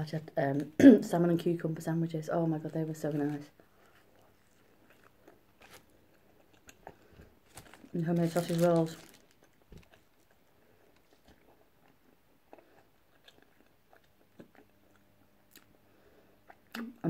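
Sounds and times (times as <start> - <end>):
person chewing: 3.4 - 17.0.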